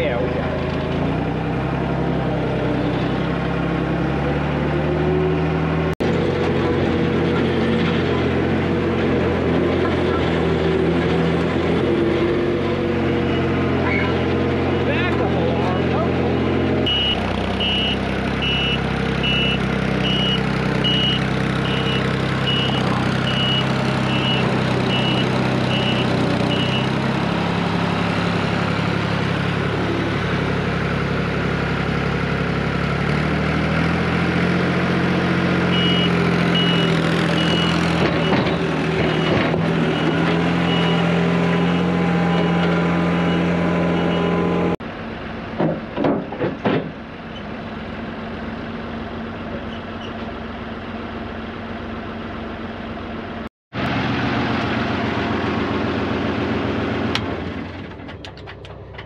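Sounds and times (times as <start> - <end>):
diesel engine running: 0.0 - 59.0
backup alarm beeping: 16.9 - 26.9, 35.7 - 38.4.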